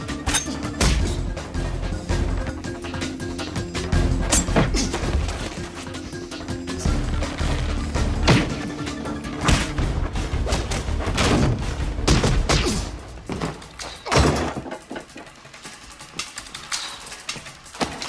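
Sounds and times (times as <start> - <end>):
tense music score: 0.0 - 14.2.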